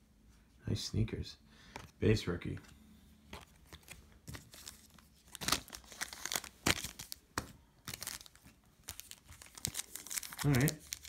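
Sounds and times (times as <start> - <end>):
foil wrapper crinkling and tearing: 3.8 - 7.2, 7.8 - 11.0.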